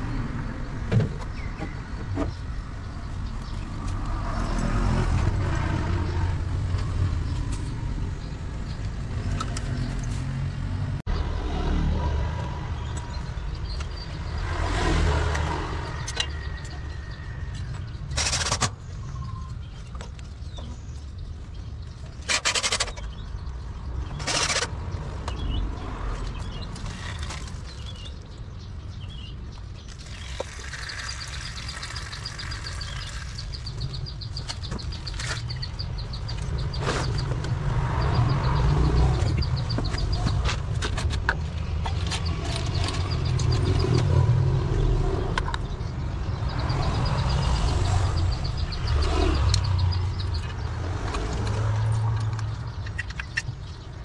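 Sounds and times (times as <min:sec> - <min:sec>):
tools and pipe fittings scraping: 0:17.5 - 0:19.5, 0:22.2 - 0:23.2, 0:24.1 - 0:24.8.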